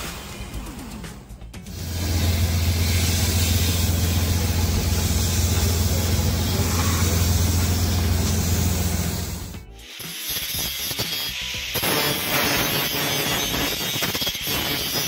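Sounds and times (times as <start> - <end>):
motor humming with hiss: 1.7 - 10.2.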